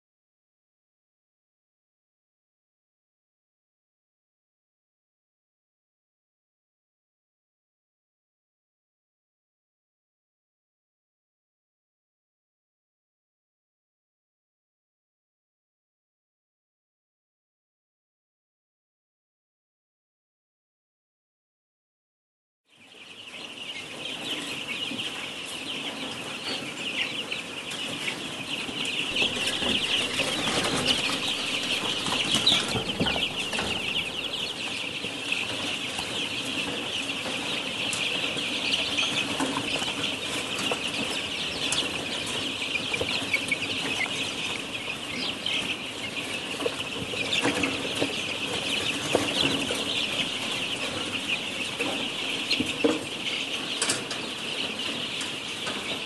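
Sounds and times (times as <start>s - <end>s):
young hens peeping: 22.7s - 56.0s
steady low hum: 29.1s - 34.9s.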